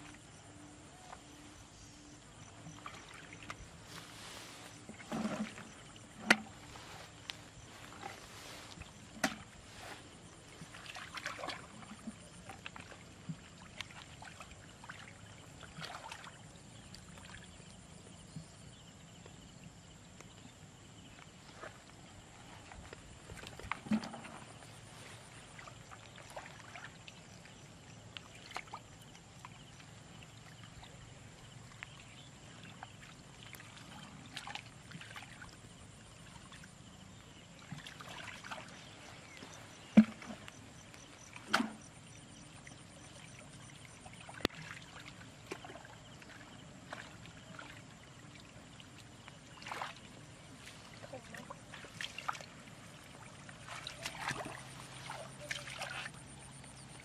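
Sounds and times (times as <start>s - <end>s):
splashing in shallow muddy water: 0.0s - 57.0s
sharp slaps on water: 41.4s - 41.9s.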